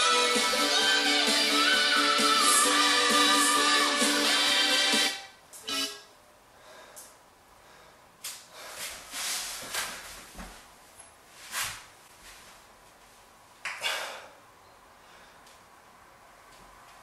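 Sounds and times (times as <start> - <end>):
person breathing hard: 6.5 - 10.0, 13.8 - 15.5
rustling on exercise mat: 8.5 - 13.6.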